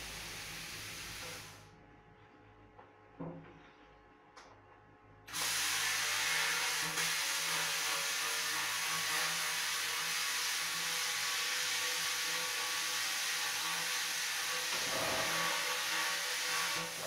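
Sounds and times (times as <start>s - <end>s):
plasma cutter hissing: 0.0s - 1.6s, 5.3s - 17.0s.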